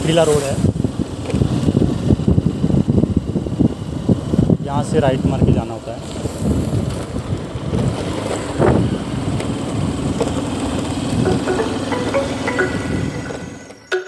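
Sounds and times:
wind buffeting microphone: 6.3 - 10.2.

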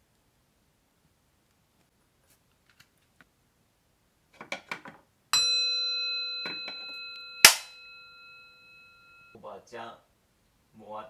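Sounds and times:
metal bowl bell ringing: 5.3 - 9.4.

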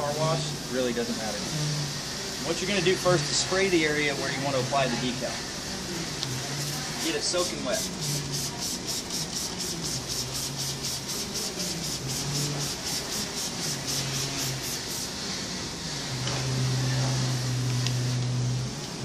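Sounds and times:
spray bottle squirting: 6.2 - 15.2.

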